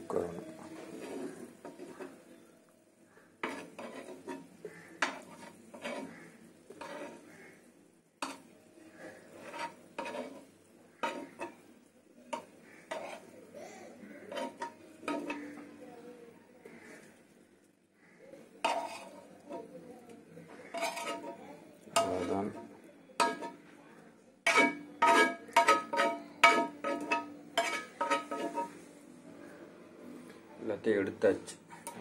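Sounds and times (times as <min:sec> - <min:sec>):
steel spoon scraping on a pan: 0:00.4 - 0:02.4, 0:03.2 - 0:11.7, 0:12.3 - 0:15.8, 0:18.4 - 0:19.8, 0:20.4 - 0:23.7, 0:24.4 - 0:29.0
food set on steel plate clinking: 0:23.2 - 0:23.6, 0:24.5 - 0:28.7.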